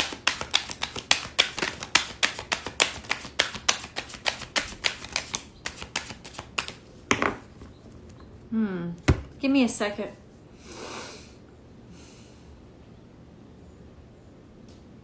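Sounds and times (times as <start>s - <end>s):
cards being shuffled: 0.0s - 6.9s.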